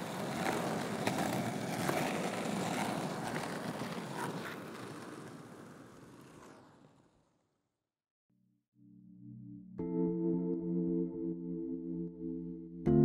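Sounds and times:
skateboard wheels rolling on pavement: 0.0 - 7.6.

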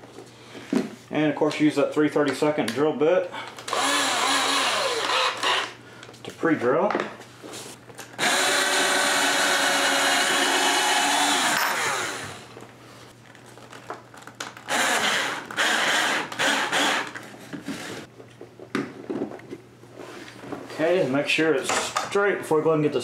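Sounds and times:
cordless drill whine: 3.7 - 5.8, 8.2 - 12.5, 14.7 - 17.2.

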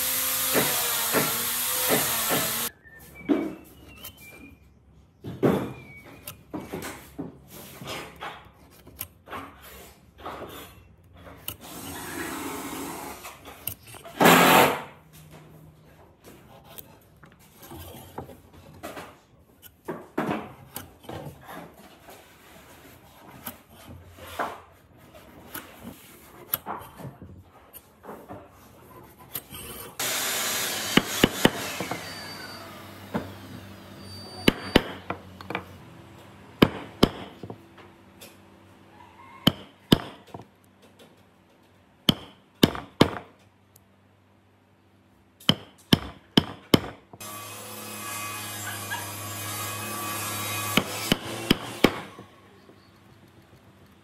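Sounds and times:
mallet driving chisel into wood: 34.4 - 35.6, 36.6 - 37.5, 39.5 - 40.4, 42.1 - 43.3, 45.4 - 47.0.

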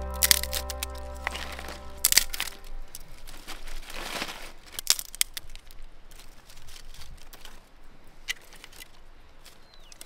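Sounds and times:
dry twigs rustling: 3.0 - 10.0.

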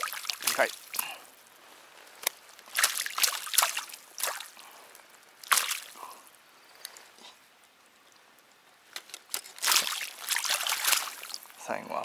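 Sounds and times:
water splashing and dripping: 0.0 - 1.3, 2.2 - 6.1, 9.4 - 11.6.

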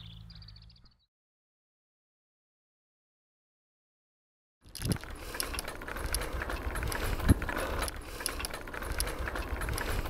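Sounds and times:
bicycle parts rattling: 4.6 - 10.0
tyre and road noise: 4.6 - 10.0.

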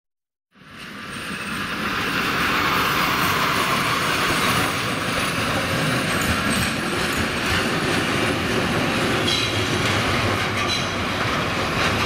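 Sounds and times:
wheel-on-rail noise: 0.6 - 12.0.

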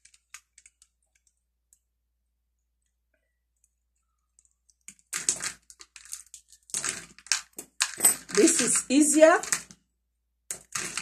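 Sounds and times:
plastic beads clicking: 0.0 - 1.8, 3.6 - 9.8, 10.5 - 11.0
beads clattering into basket: 5.1 - 9.8, 10.5 - 11.0.

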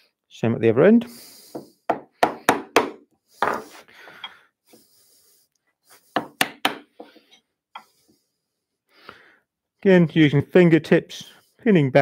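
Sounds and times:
mallet striking chisel into wood: 1.9 - 3.0, 6.2 - 6.9.

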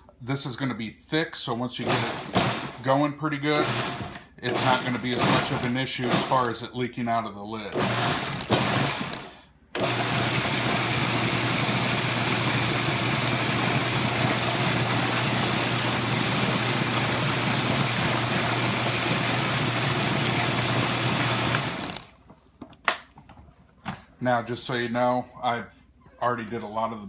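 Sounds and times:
food processor blending: 1.8 - 6.6, 7.7 - 22.1.

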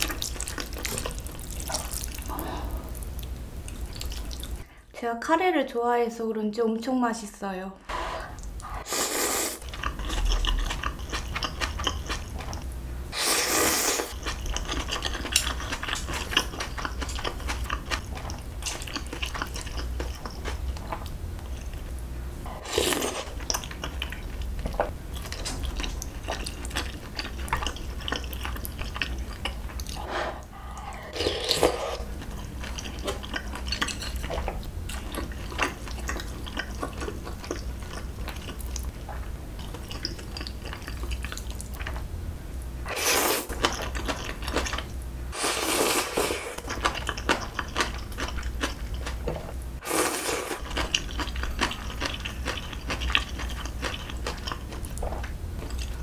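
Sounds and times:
chewing: 0.0 - 4.6, 9.6 - 12.6, 14.1 - 21.9, 22.5 - 42.0, 46.1 - 49.5, 50.4 - 56.0.

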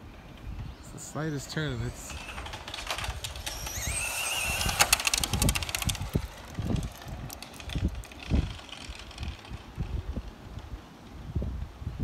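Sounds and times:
electric motor whining: 1.8 - 9.3.

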